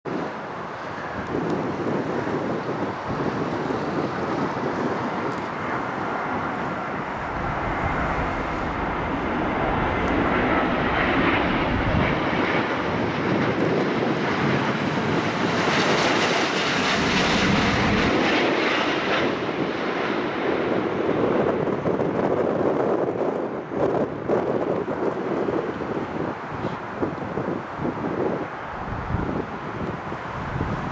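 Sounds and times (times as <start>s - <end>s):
jet airliner rumble: 0.1s - 30.9s
jet engine hiss: 0.4s - 13.4s.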